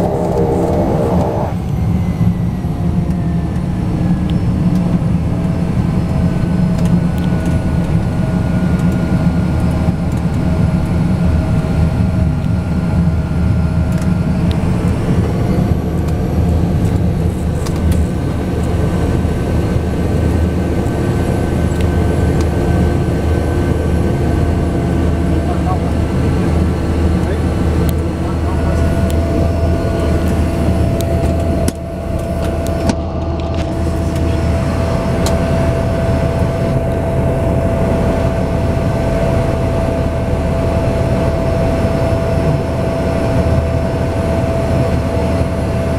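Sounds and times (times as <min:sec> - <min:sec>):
faint high whine: 0:00.0 - 0:03.4
turboprop engine drone: 0:00.0 - 0:45.9.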